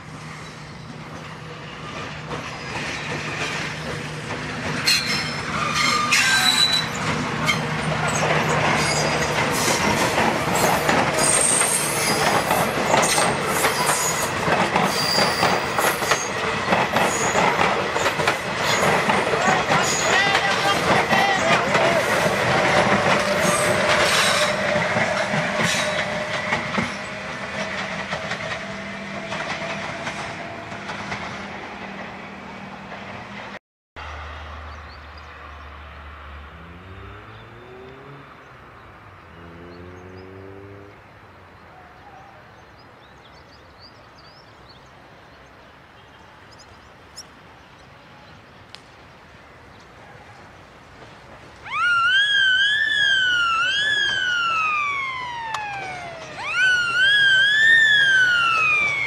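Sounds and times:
train wheels clattering: 1.1s - 32.2s
siren wailing: 51.6s - 59.0s
train motor whining: 51.6s - 59.0s.

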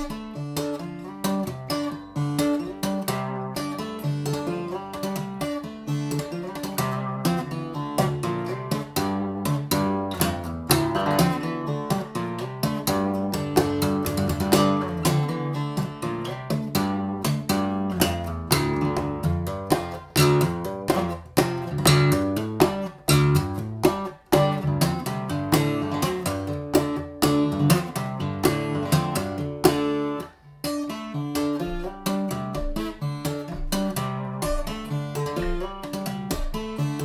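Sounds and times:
fingerstyle acoustic guitar: 0.0s - 37.0s.

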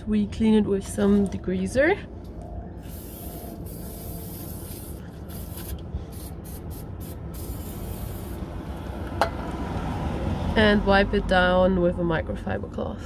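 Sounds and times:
aerosol can spraying: 2.8s - 8.4s.

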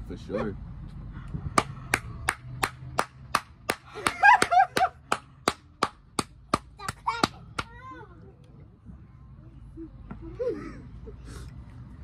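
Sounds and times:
hand clapping: 1.6s - 7.8s.

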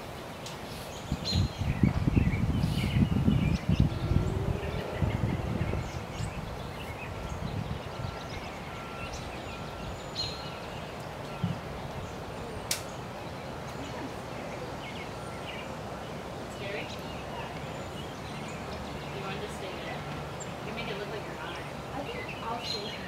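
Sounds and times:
birds chirping: 0.0s - 23.0s
low background noise: 0.0s - 23.0s
sharp click: 12.7s - 12.9s.

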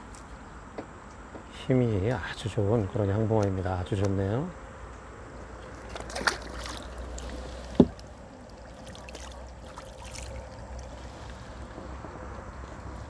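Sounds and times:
low outdoor background: 0.0s - 13.0s
water splashing: 5.6s - 11.7s.

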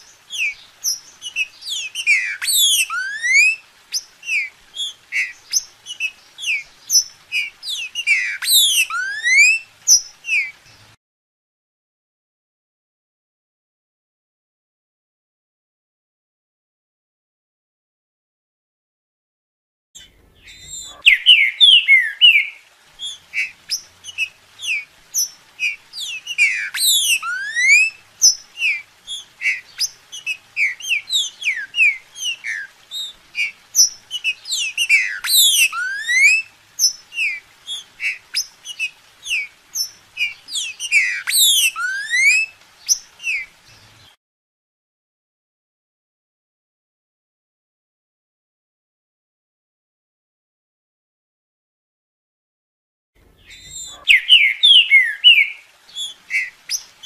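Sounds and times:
bird singing whistled notes: 0.0s - 10.8s, 20.0s - 44.1s, 53.4s - 57.0s.

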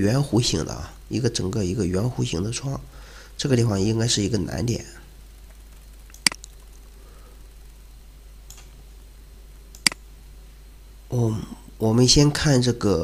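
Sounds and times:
low room hiss: 0.0s - 13.0s
computer mouse clicks: 5.4s - 6.9s, 8.5s - 8.8s, 9.7s - 10.0s.

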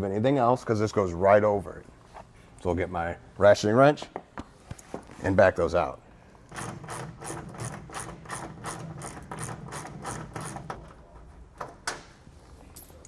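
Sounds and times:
ratcheting wrench clicking: 6.5s - 10.7s.

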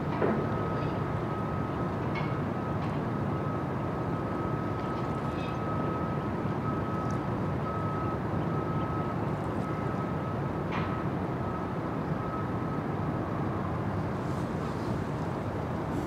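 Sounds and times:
ship engines rumbling: 13.6s - 16.0s.

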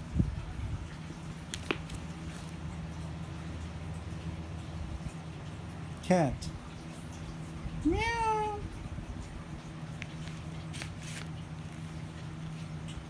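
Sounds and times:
person imitating cat meow: 7.8s - 8.7s.

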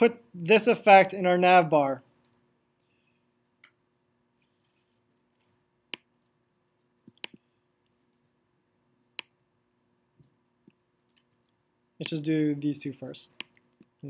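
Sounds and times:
faint steady hum: 0.0s - 14.0s
computer mouse clicks: 7.1s - 8.1s.

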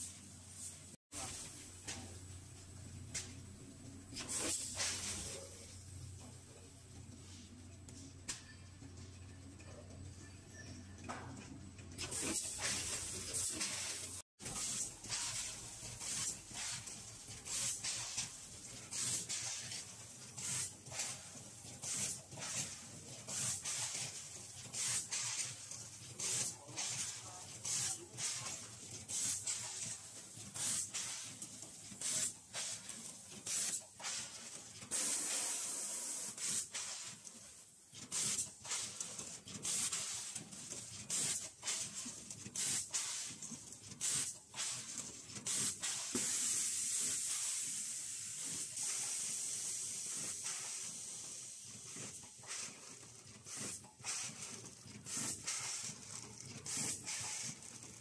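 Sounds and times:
compressed air hisses: 45.5s - 51.0s.

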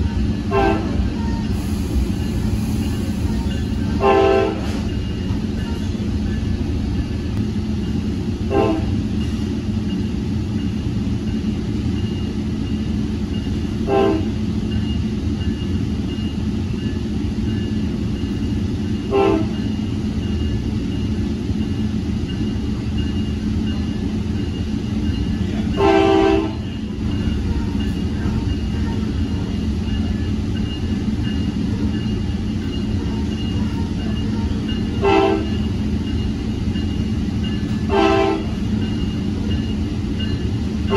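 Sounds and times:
train rumbling: 0.0s - 40.9s
train horn blasts: 0.4s - 1.1s, 4.0s - 4.8s, 8.5s - 9.0s, 13.8s - 14.4s, 19.1s - 19.6s, 25.8s - 26.7s, 35.0s - 35.6s, 37.9s - 38.6s.

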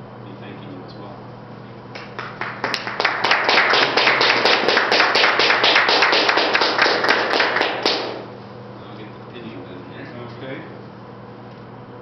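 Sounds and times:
single hand claps: 1.9s - 8.2s
small group applauding: 1.9s - 8.3s.

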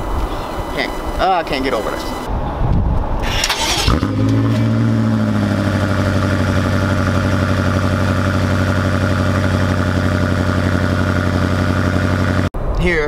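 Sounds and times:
car engine starting and idling: 3.2s - 12.5s.

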